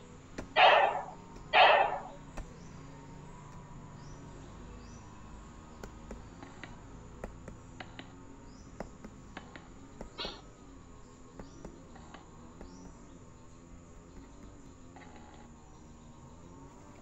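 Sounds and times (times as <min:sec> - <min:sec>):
faint high chirps: 0:00.6 - 0:02.8.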